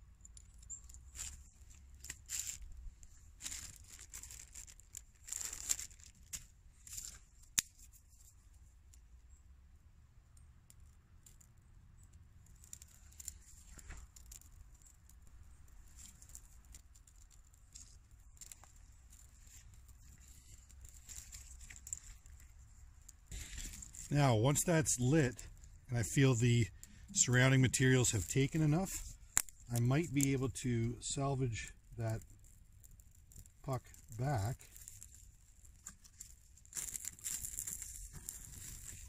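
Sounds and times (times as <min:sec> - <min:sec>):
faint fire crackling: 0:00.0 - 0:39.0
wood shavings rustling: 0:00.6 - 0:07.3, 0:12.6 - 0:30.5, 0:32.1 - 0:39.0
wood snapping: 0:03.4 - 0:07.9, 0:12.6 - 0:24.1, 0:28.9 - 0:30.4, 0:32.2 - 0:39.0.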